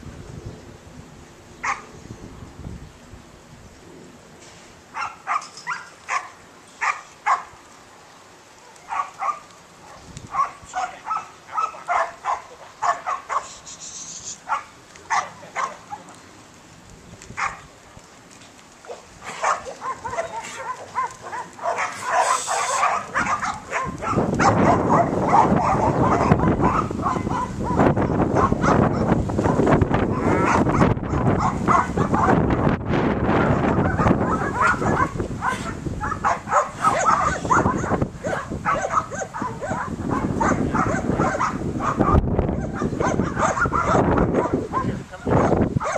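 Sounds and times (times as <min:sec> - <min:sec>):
dog barking: 0:01.6 - 0:01.9, 0:05.0 - 0:07.5, 0:08.6 - 0:13.6, 0:14.4 - 0:16.0, 0:17.4 - 0:17.7, 0:18.8 - 0:32.5, 0:33.4 - 0:45.9.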